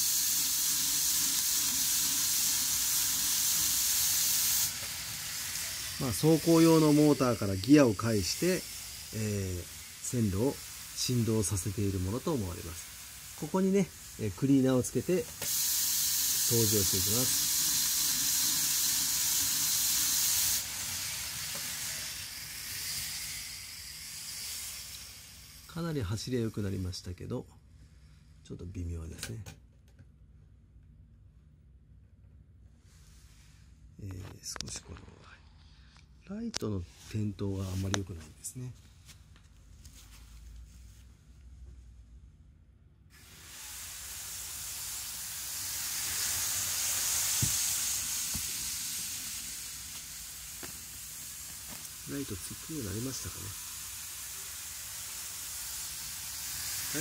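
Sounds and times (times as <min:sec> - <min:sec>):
model train rushing hiss: 0:00.0 - 0:27.0, 0:43.1 - 0:57.0.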